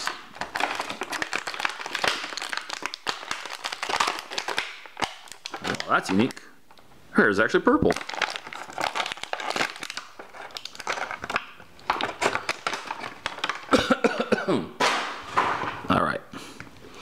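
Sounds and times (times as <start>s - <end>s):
plastic packaging crackling: 0.0s - 6.5s, 7.8s - 14.0s.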